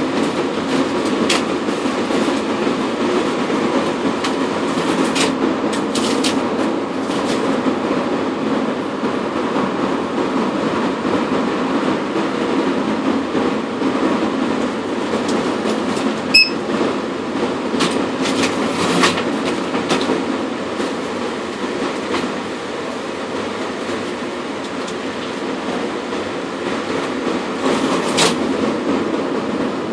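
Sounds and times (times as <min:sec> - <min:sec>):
machinery rumble: 0:00.0 - 0:29.9
short electronic beep: 0:16.3 - 0:16.6.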